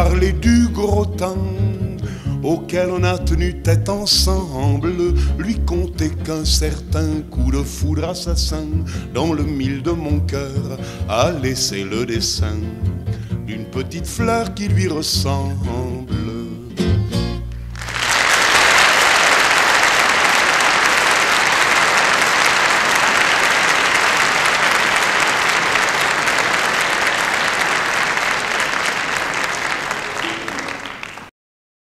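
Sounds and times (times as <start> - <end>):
audience applauding: 17.6 - 31.3.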